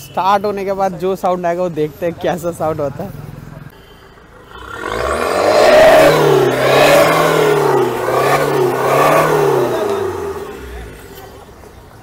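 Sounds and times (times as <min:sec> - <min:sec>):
diesel engine revving: 0:02.6 - 0:11.6.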